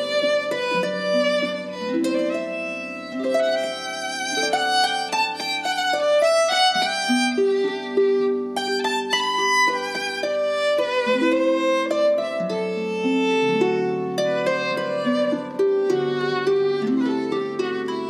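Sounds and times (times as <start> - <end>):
bowed violin melody: 0.0 - 18.0
plucked harp notes: 0.0 - 18.0.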